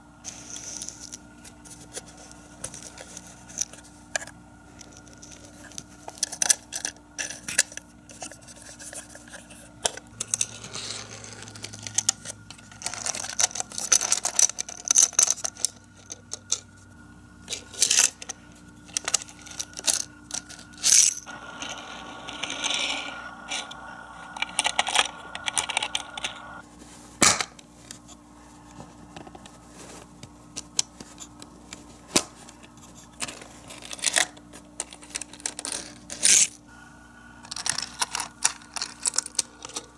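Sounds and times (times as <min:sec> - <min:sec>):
toy cars clicking and clacking: 0:37.5 - 0:39.9.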